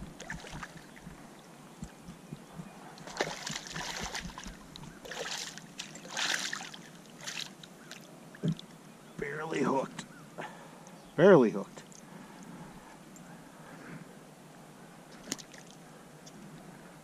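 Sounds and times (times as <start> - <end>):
fish thrashing and splashing: 0.0 - 1.2, 3.0 - 8.6.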